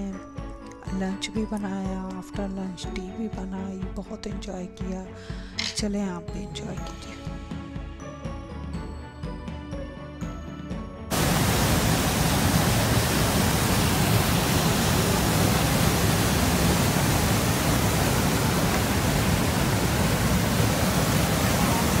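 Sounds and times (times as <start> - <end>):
waterfall roaring: 11.1 - 22.0.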